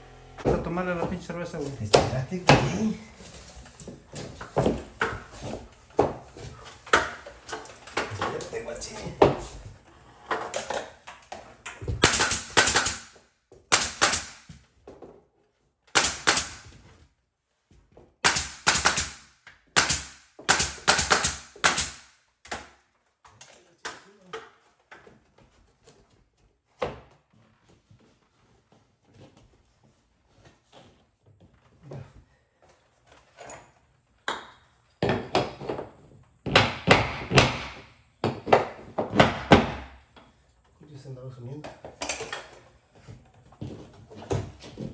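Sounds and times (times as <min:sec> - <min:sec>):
nail gun shots: 0:11.9 - 0:14.5, 0:15.9 - 0:16.8, 0:18.2 - 0:22.7, 0:36.5 - 0:37.9.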